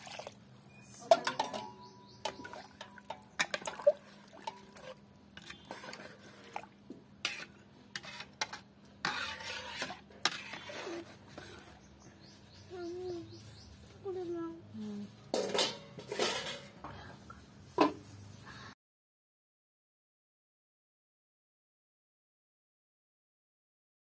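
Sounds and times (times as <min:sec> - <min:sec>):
metal ladle scraping a pot: 0:01.0 - 0:12.0, 0:15.2 - 0:16.8.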